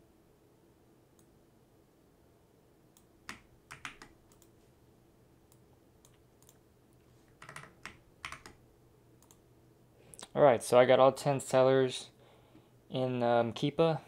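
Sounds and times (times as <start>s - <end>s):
computer keyboard keystrokes: 3.2s - 4.5s, 7.3s - 8.6s.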